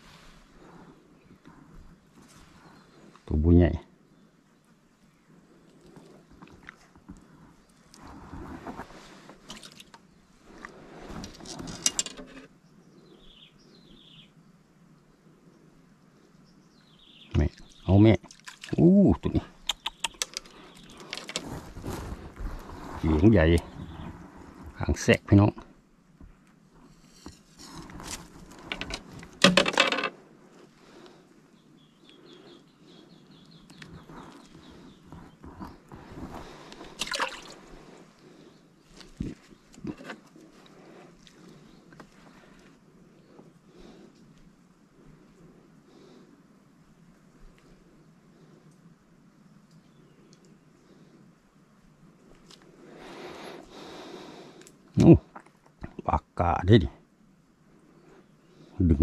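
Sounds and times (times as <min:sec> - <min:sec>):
bird chirping: 0:12.6 - 0:14.4, 0:16.4 - 0:18.0, 0:19.6 - 0:21.3, 0:31.5 - 0:35.8
fish handling knocks and rustles: 0:28.1 - 0:30.1.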